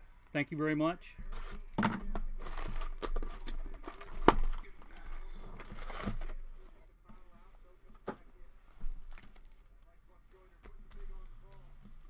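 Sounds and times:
packaging crinkling and tearing: 0:01.3 - 0:06.4.

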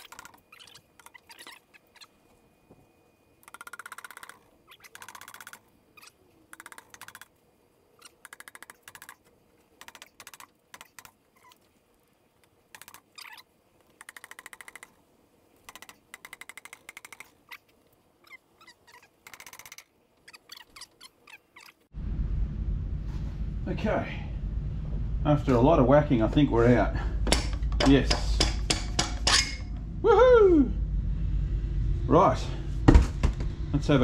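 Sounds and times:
nylon hammer tapping metal: 0:27.2 - 0:29.7.

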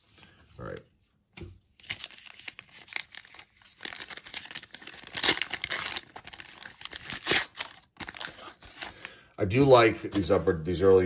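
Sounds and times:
foil wrapper tearing and crinkling: 0:01.8 - 0:09.2.

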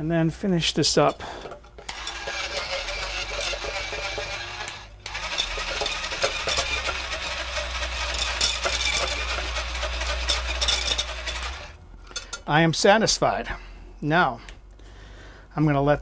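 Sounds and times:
handheld whisk motor hum: 0:01.8 - 0:11.8.

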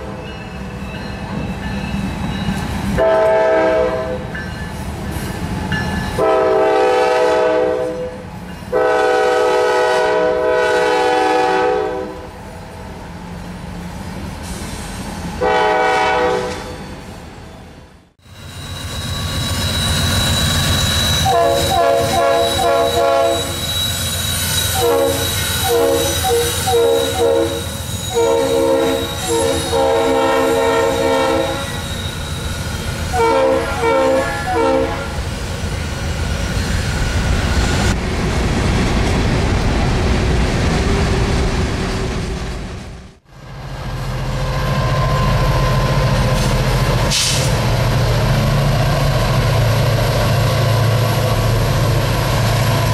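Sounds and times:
diesel locomotives engine drone: 0:00.0 - 0:52.9
freight locomotive engine passing: 0:00.0 - 0:52.9
train air horn blasts: 0:03.0 - 0:04.3, 0:06.2 - 0:12.3, 0:15.4 - 0:16.7, 0:21.2 - 0:23.7, 0:24.7 - 0:32.0, 0:33.1 - 0:35.2
high wheel squeal: 0:16.5 - 0:34.8.

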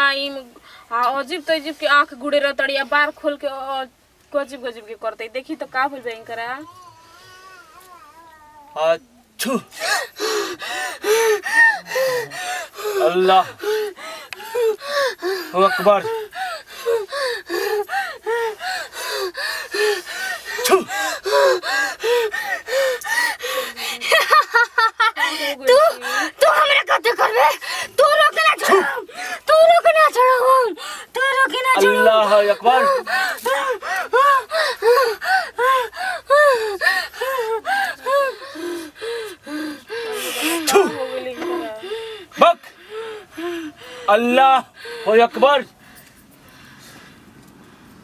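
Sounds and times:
woman panting gasps: 0:09.7 - 0:24.1, 0:27.6 - 0:28.0, 0:29.0 - 0:29.5, 0:30.8 - 0:31.2, 0:32.7 - 0:44.2.

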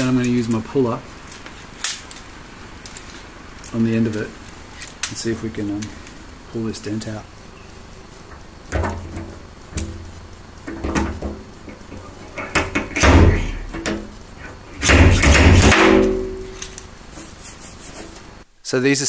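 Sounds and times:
metal panel thudding and ringing: 0:08.7 - 0:11.4, 0:12.6 - 0:14.0, 0:14.8 - 0:16.6.

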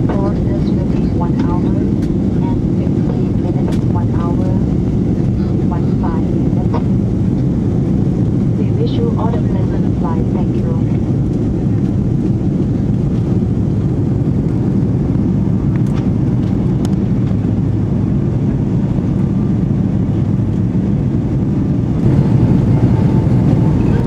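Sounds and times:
jet engines rumbling in cabin: 0:00.0 - 0:24.0
rushing air: 0:19.6 - 0:24.0.

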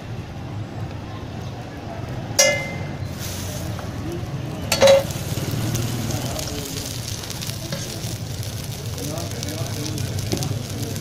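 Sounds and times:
patties sizzling on griddle: 0:02.1 - 0:11.0
metal spatula clanging on griddle: 0:02.4 - 0:03.1, 0:04.7 - 0:05.2.

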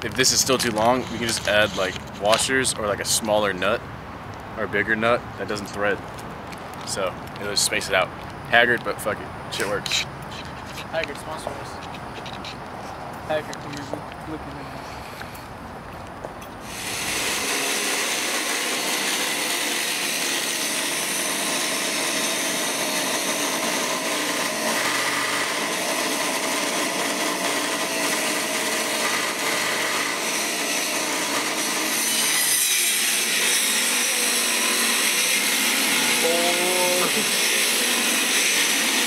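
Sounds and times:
angle grinder cutting metal: 0:00.3 - 0:02.8, 0:16.6 - 0:39.0.

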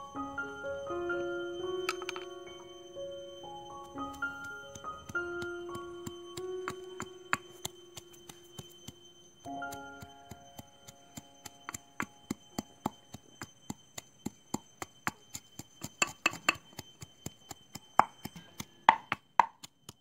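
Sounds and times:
pestle pounding in metal mortar: 0:14.2 - 0:20.0.

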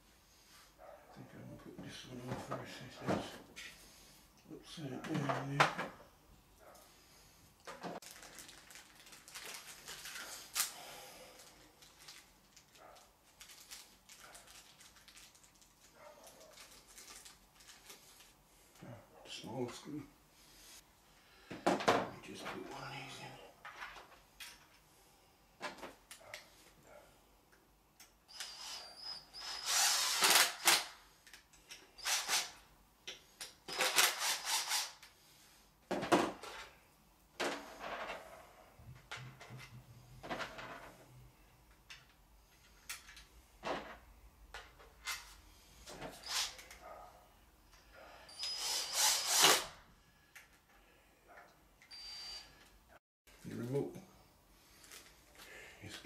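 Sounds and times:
cordless drill whining: 0:28.3 - 0:30.9, 0:32.0 - 0:32.6, 0:46.1 - 0:46.7, 0:48.3 - 0:49.8.

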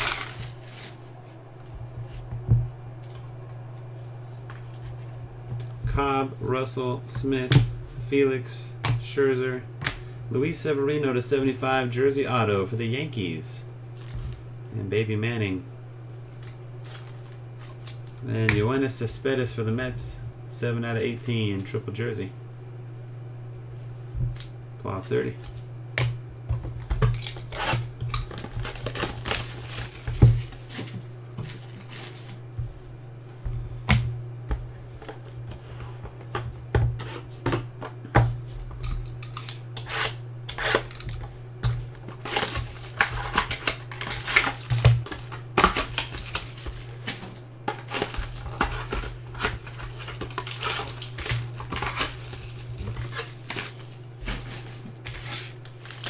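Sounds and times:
foil packs crinkling: 0:00.0 - 0:01.2, 0:27.0 - 0:32.4, 0:40.7 - 0:56.0
low hum: 0:00.0 - 0:14.9.

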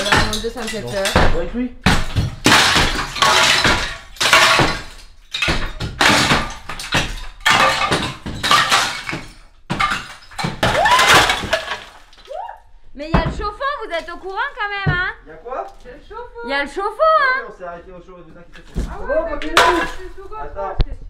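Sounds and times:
plaster ceiling crashing down: 0:00.0 - 0:12.4.

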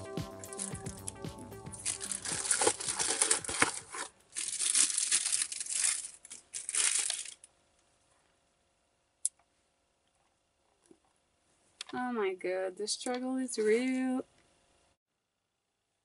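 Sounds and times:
plastic wrapping crinkling: 0:01.8 - 0:07.6.

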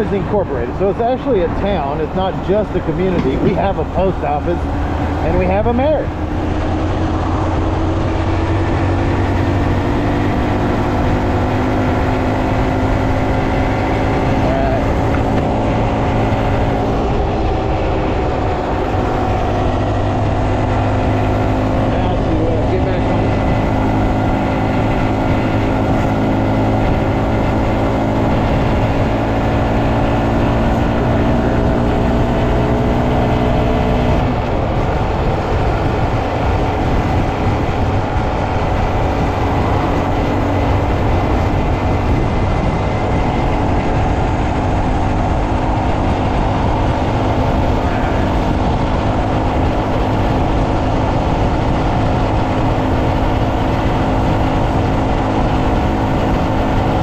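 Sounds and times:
motorcycle engine cruising: 0:00.0 - 0:57.0
wind rushing: 0:00.0 - 0:57.0.

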